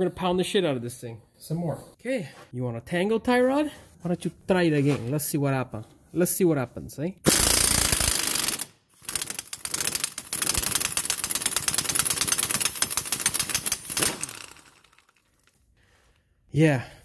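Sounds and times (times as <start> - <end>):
pneumatic impact wrench hammering: 7.3 - 15.0.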